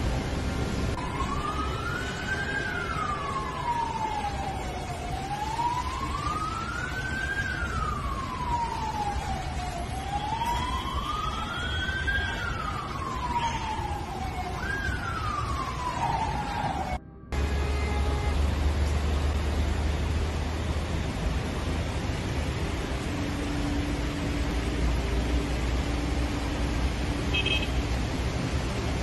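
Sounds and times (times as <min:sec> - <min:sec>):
siren wailing: 0:01.0 - 0:19.4.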